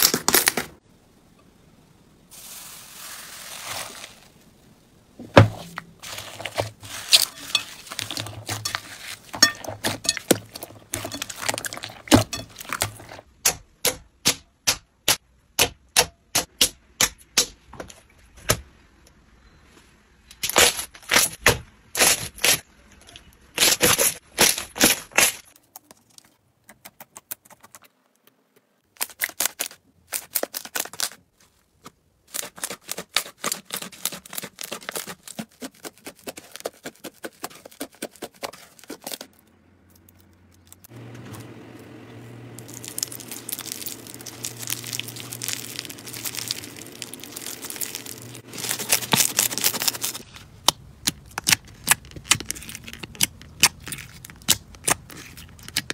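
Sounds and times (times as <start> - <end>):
low steady hum: 39.4 - 51.7
slime popping and crackling: 42.5 - 55.9.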